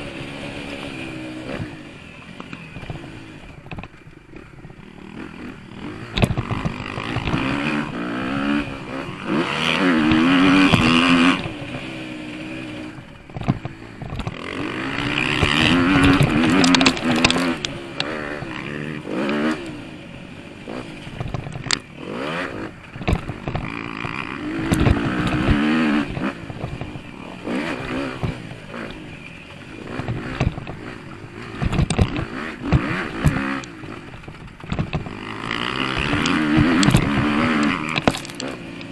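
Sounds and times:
motocross bike engine revving: 0.0 - 38.9
knocks and rattles from bumps: 5.8 - 8.8, 13.2 - 19.6, 21.1 - 21.9, 22.8 - 29.0, 29.9 - 38.9.

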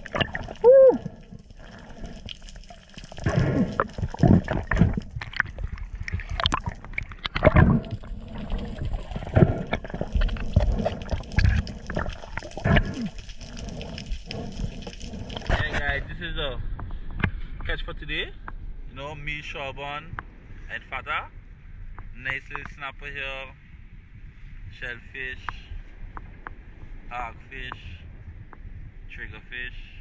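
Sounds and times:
water gurgling and bubbling: 0.0 - 16.0.

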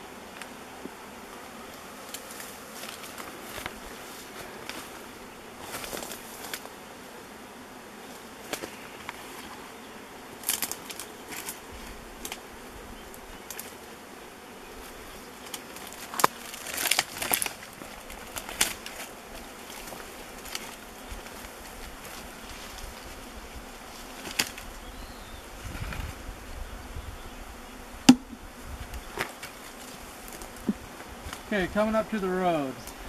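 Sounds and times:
bees buzzing: 0.0 - 33.0.

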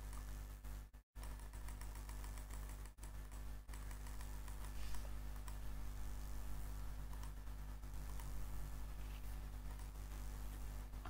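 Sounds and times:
computer mouse clicks: 0.0 - 0.3, 1.2 - 5.7, 7.0 - 8.4, 9.6 - 10.0
steady low hum: 0.0 - 11.0.

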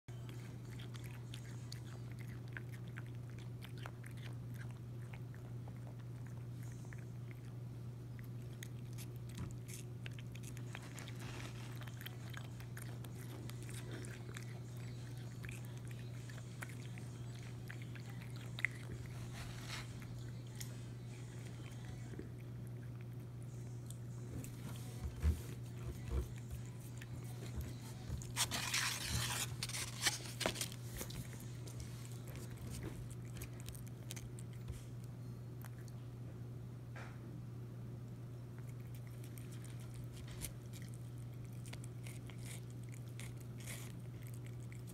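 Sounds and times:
cat chewing watermelon: 0.1 - 36.3, 38.1 - 44.9.

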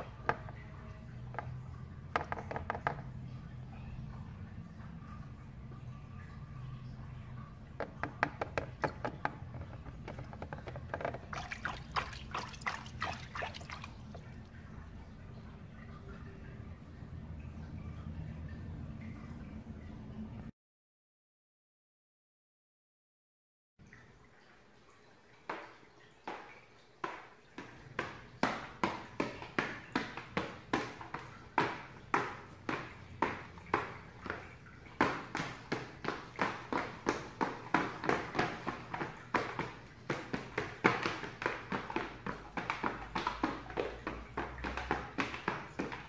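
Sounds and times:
sneakers stamping on a board: 7.8 - 14.3, 27.0 - 46.0
hand splashing water in tub: 7.8 - 14.6.

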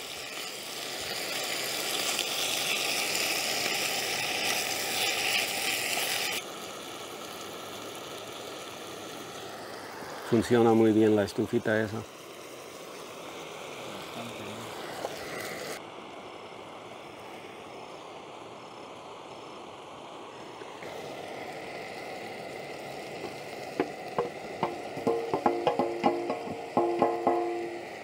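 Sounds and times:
meat sizzling in a frying pan: 0.0 - 15.8, 19.5 - 28.0
utensils clattering against a pan: 24.6 - 27.8.

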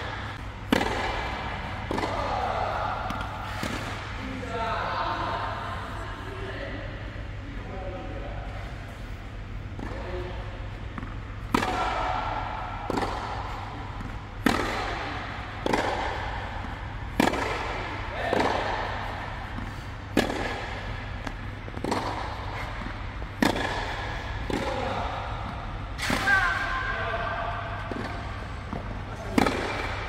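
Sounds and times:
tennis ball struck by rackets: 0.0 - 4.1, 10.9 - 26.3, 27.9 - 30.0
steady low hum: 0.0 - 30.0.

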